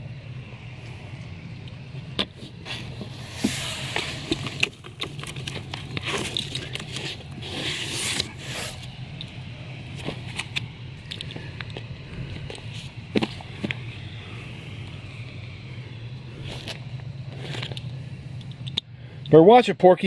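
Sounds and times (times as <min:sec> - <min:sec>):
steady low hum: 0:00.0 - 0:20.0
paper and cardboard rustling: 0:02.2 - 0:08.9, 0:09.8 - 0:10.7.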